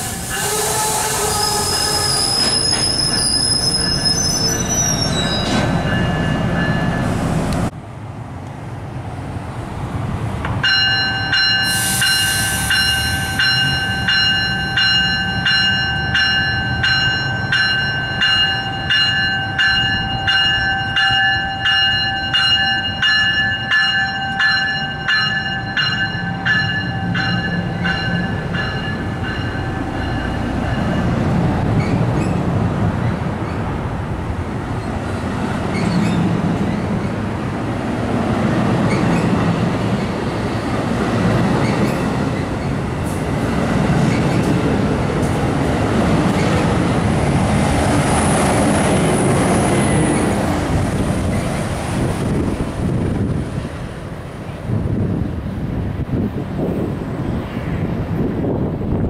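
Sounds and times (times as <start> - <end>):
train coaches rumbling past: 0.0 - 59.0
train bell ringing: 3.6 - 7.1, 10.6 - 31.2.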